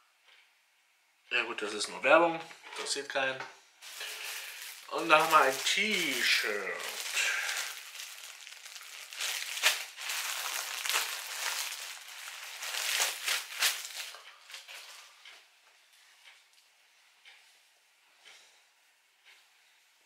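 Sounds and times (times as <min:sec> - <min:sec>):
plastic bag crinkling: 0:03.8 - 0:15.0
fabric rustling: 0:03.8 - 0:15.1.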